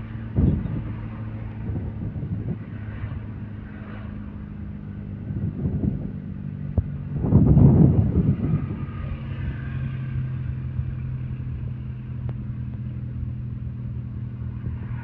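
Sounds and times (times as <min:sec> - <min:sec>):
car engine hum: 0:00.0 - 0:15.0
road noise inside car: 0:00.0 - 0:15.0.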